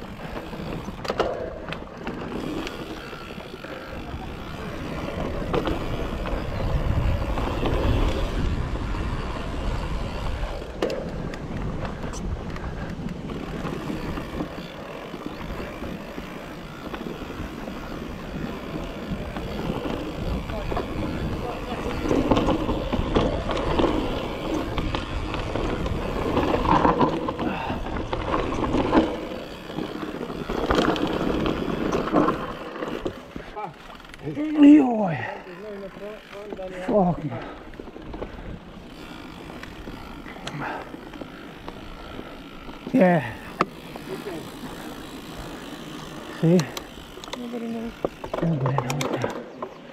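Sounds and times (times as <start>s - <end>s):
wind buffeting microphone: 0.0s - 33.5s
bike tyre noise on dirt: 0.0s - 49.9s.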